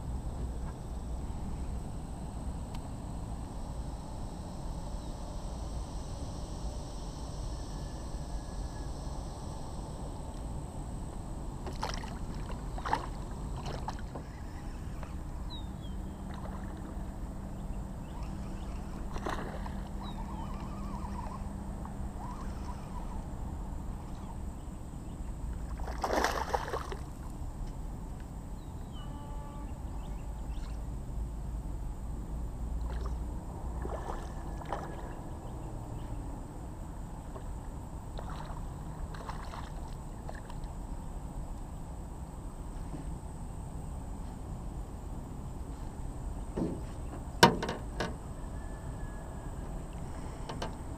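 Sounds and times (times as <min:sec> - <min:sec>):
low steady hum: 0:00.0 - 0:50.9
water lapping around boat: 0:11.5 - 0:23.3, 0:25.5 - 0:27.4, 0:32.8 - 0:35.6, 0:37.2 - 0:41.2, 0:49.6 - 0:50.9
knocks and splashes: 0:11.7 - 0:14.2, 0:19.1 - 0:19.8, 0:25.8 - 0:27.0, 0:33.8 - 0:35.1, 0:38.2 - 0:40.5.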